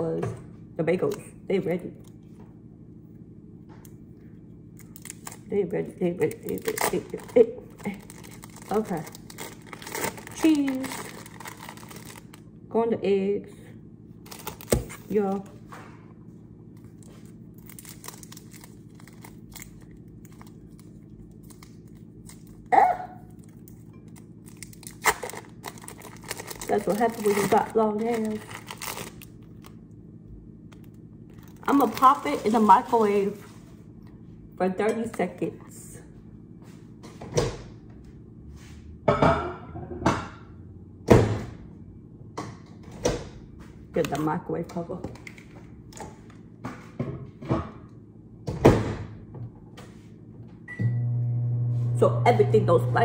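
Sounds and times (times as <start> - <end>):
steady low hum: 0.0 - 53.0
plastic wrapper crinkling: 4.8 - 5.5, 6.2 - 12.5, 14.2 - 15.5, 16.8 - 22.7, 23.3 - 29.8, 30.7 - 33.4.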